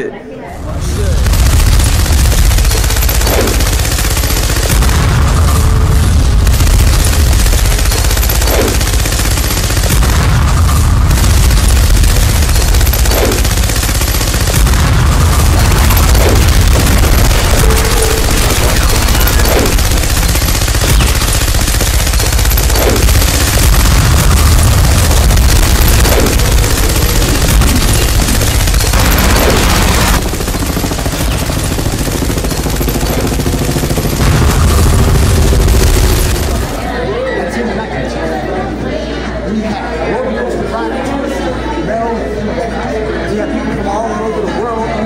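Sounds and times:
explosions: 0:00.8 - 0:31.6, 0:33.9 - 0:37.0
gunfire: 0:01.2 - 0:37.0.

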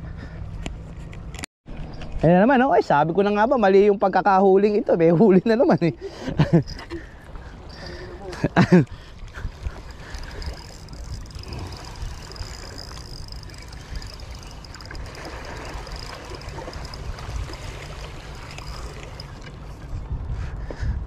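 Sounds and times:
water lapping and gurgling: 0:06.0 - 0:20.7
wind rumbling on microphone: 0:06.2 - 0:21.0.

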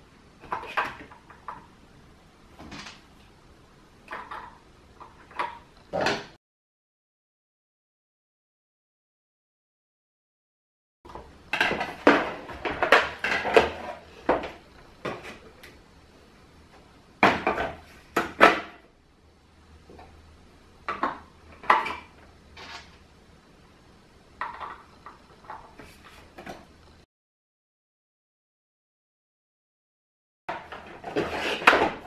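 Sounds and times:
plastic parts clicking and knocking: 0:24.4 - 0:26.7.

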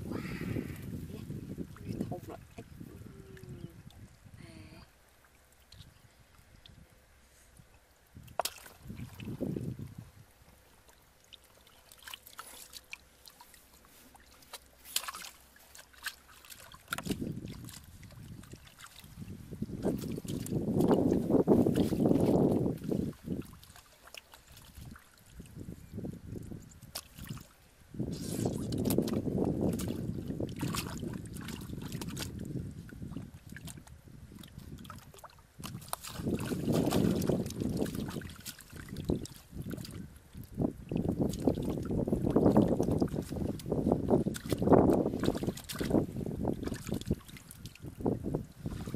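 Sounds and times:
wind rumble on microphone: 0:00.0 - 0:05.0, 0:05.6 - 0:10.8, 0:16.6 - 0:48.9
water dripping and splashing: 0:08.2 - 0:09.9, 0:10.7 - 0:25.6, 0:26.3 - 0:27.6, 0:28.5 - 0:48.9
hands sloshing muddy water: 0:08.2 - 0:10.0, 0:10.7 - 0:48.9.

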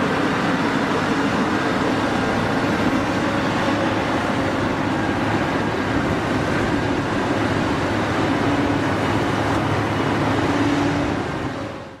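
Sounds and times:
excavator diesel engine under load: 0:00.0 - 0:12.0
pitched mechanical hum: 0:00.0 - 0:12.0.

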